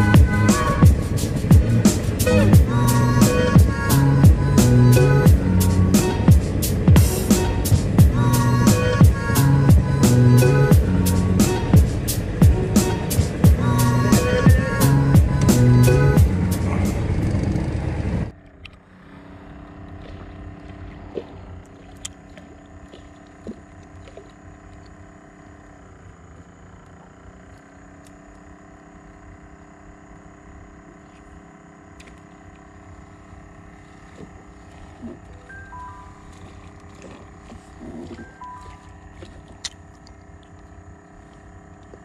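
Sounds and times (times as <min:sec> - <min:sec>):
background music: 0:00.0 - 0:17.0
steady motor hum: 0:00.0 - 0:42.0.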